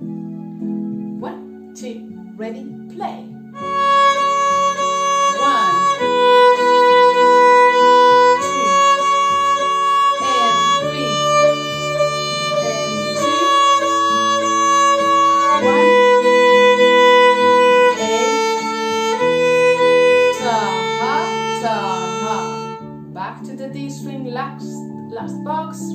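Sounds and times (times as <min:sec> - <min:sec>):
backing track music: 0:00.0 - 0:25.9
violin bowed melody: 0:00.0 - 0:25.9.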